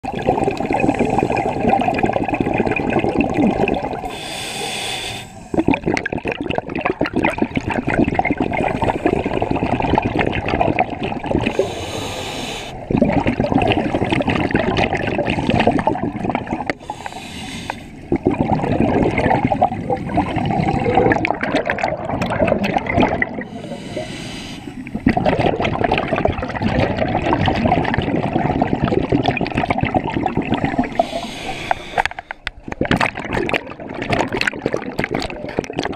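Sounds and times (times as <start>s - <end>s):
exhaled bubbles rushing: 0.0s - 4.1s, 5.5s - 11.8s, 12.8s - 17.2s, 18.0s - 24.0s, 24.6s - 35.9s
regulator inhale hiss: 4.0s - 5.6s, 11.5s - 12.9s, 16.8s - 18.0s, 23.4s - 25.0s, 30.9s - 32.5s.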